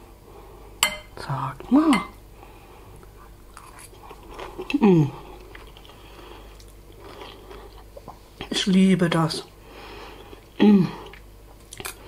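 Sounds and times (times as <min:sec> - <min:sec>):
person chewing noodles: 0:02.9 - 0:08.5, 0:09.4 - 0:12.0
person humming mmm: 0:04.6 - 0:05.4, 0:10.5 - 0:11.2.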